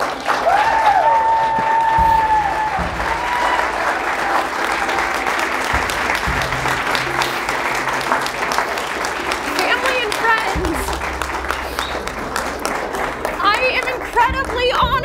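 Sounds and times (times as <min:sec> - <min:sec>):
audience clapping: 0:00.0 - 0:15.0
person whooping: 0:00.4 - 0:03.8
person cheering: 0:00.4 - 0:05.1.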